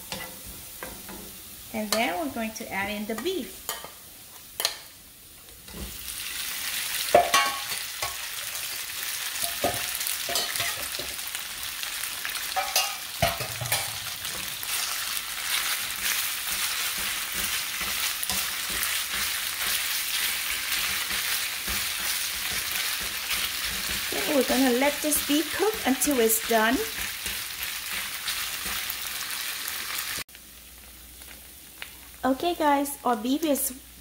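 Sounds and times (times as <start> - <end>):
meat sizzling in hot oil: 0.0 - 34.0
stirring in a pan: 5.5 - 29.9.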